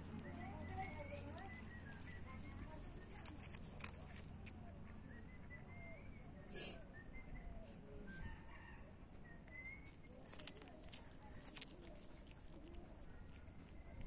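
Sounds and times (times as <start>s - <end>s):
cat chewing fish: 0.1s - 4.5s, 9.9s - 14.0s.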